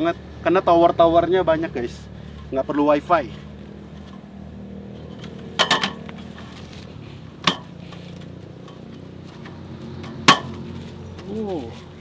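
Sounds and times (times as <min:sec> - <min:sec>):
metal folding table clinking: 0:05.1 - 0:06.1.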